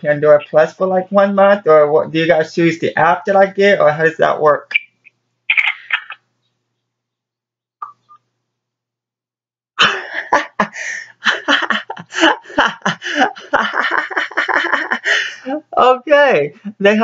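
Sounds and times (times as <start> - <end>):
man laughing in stifled bursts: 9.8 - 15.4.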